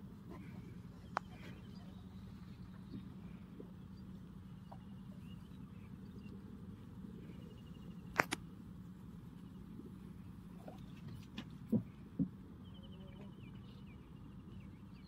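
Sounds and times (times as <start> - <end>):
low steady background noise: 0.0 - 15.0
faint high chirping trills: 0.8 - 8.1.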